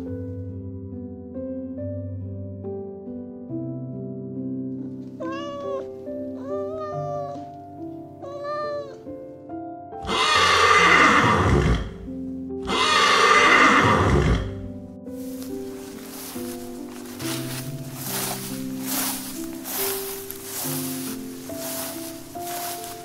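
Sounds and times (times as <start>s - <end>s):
soft background music: 0.0s - 23.0s
cat meowing: 5.2s - 7.5s, 8.2s - 9.1s
horse whinnying: 10.0s - 12.0s, 12.6s - 14.6s.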